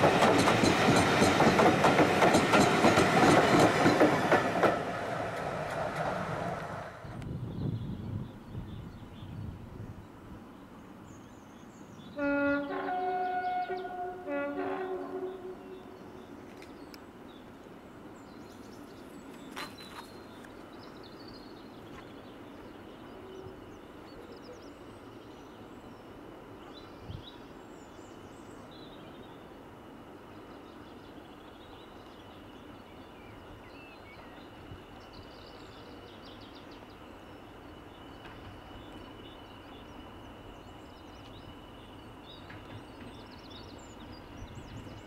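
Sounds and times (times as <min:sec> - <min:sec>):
locomotive approaching: 0:00.0 - 0:07.4
locomotive two-tone horn: 0:12.2 - 0:15.8.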